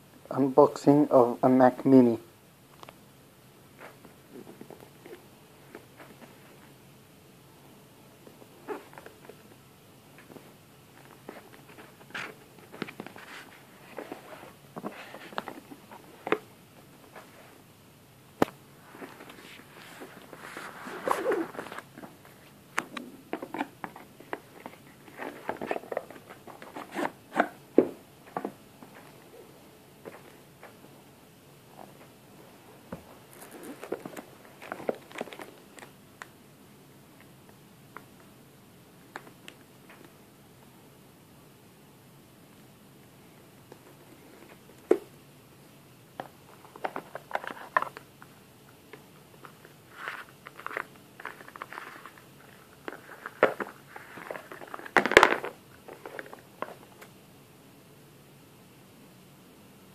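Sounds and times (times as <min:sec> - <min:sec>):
hands handling cardboard box: 0:18.4 - 0:29.2.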